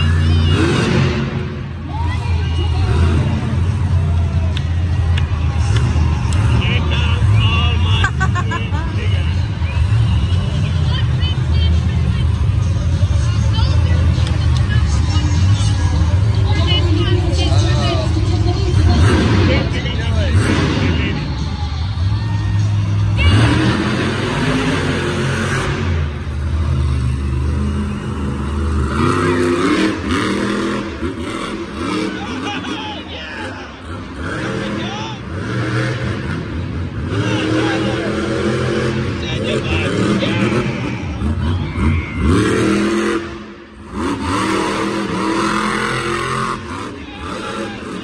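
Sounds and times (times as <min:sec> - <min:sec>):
monster truck engine revving: 0:00.0 - 0:48.0.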